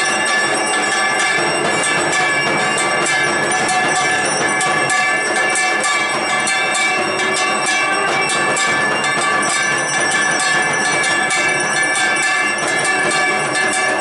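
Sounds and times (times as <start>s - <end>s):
handbells clanging: 0.0s - 14.0s.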